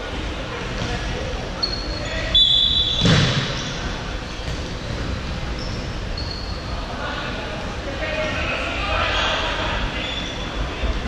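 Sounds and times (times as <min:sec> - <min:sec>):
shoes squeaking on wooden court: 0:01.6 - 0:06.7.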